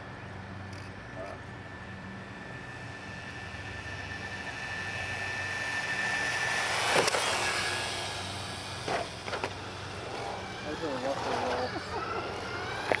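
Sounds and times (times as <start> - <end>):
electric motors high whine: 0.0 - 13.0
toy cars clattering against curb: 6.5 - 13.0.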